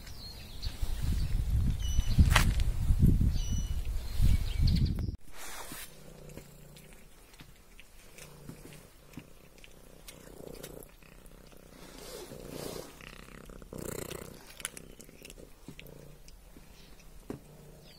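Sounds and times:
cat purring: 8.0 - 17.9.

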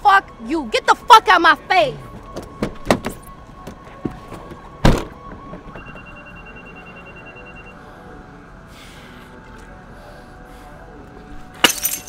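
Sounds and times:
car door shutting: 4.8 - 5.2.

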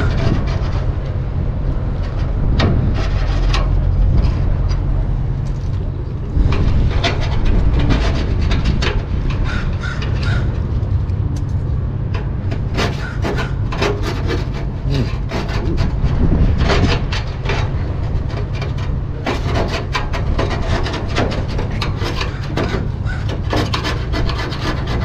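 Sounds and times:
scraper blade scraping metal pipe: 0.0 - 4.7, 6.3 - 11.0, 12.0 - 25.0
low rumble: 0.0 - 24.9.

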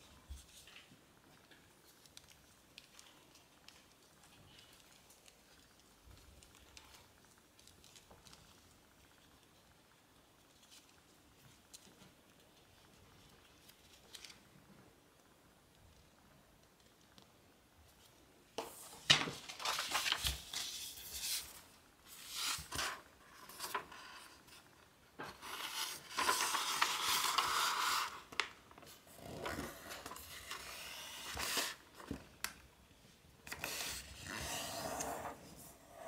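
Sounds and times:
paper rustling: 10.4 - 14.5, 18.6 - 32.6.

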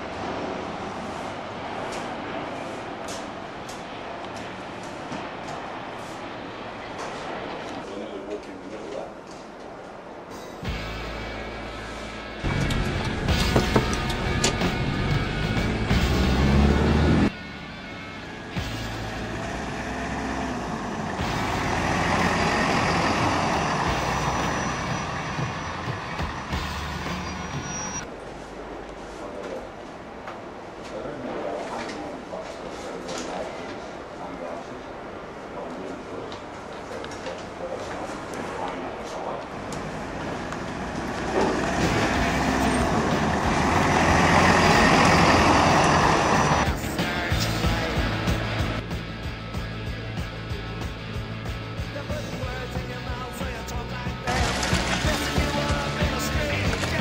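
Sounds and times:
vehicle engine rumbling: 10.4 - 30.8, 32.3 - 57.0
pickup truck driving past: 12.4 - 28.0, 39.8 - 46.7.

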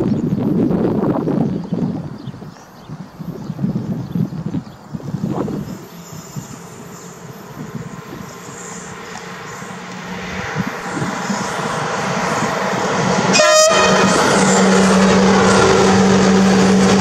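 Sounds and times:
electric locomotive hauling freight train: 0.1 - 17.0
train horn note: 12.3 - 17.0.

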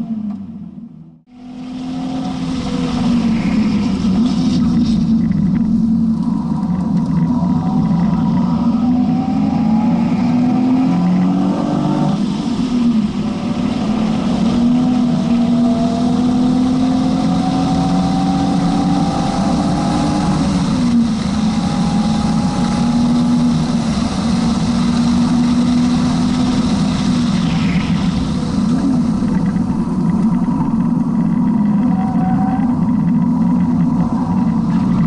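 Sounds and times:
car engine pulling hard: 0.0 - 35.0.

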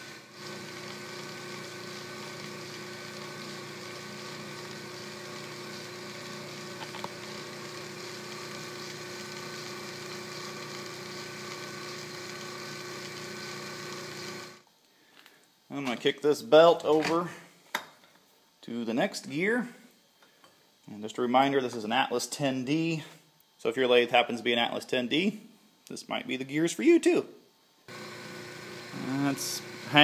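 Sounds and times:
metal lathe humming: 0.0 - 14.6, 27.9 - 30.0.

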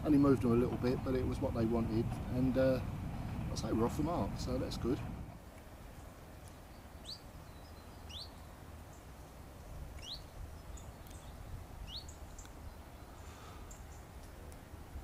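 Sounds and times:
faint low rumble: 0.0 - 5.4
songbird chirping: 3.6 - 14.6.

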